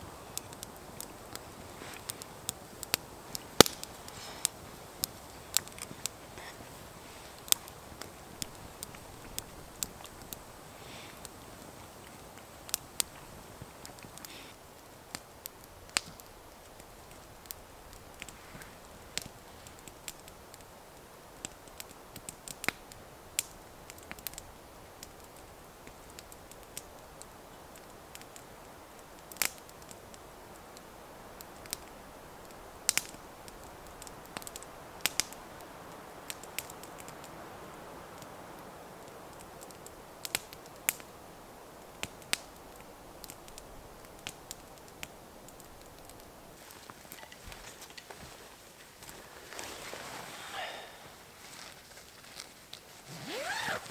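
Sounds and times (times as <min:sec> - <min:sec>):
soft steady hiss: 0:00.0 - 0:53.9
wood fire crackling and popping: 0:00.1 - 0:53.9.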